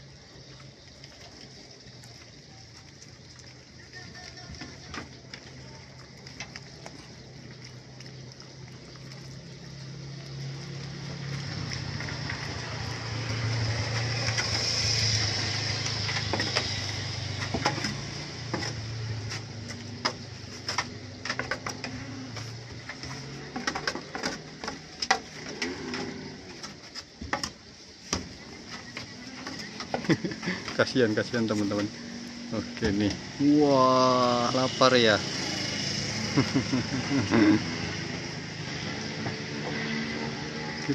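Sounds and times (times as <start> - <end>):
goats munching: 0.0 - 40.9
wet clicks and smacks: 5.2 - 22.0.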